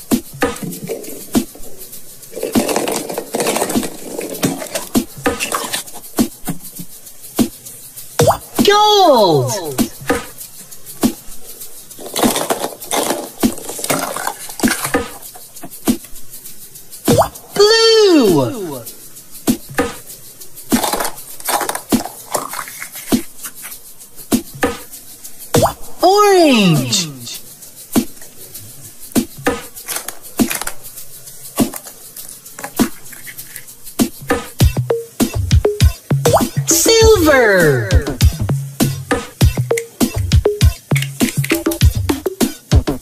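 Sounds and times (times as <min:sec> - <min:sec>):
plastic egg clicking and clattering: 0:00.5 - 0:06.8, 0:11.9 - 0:16.2, 0:20.7 - 0:23.7, 0:29.2 - 0:33.8.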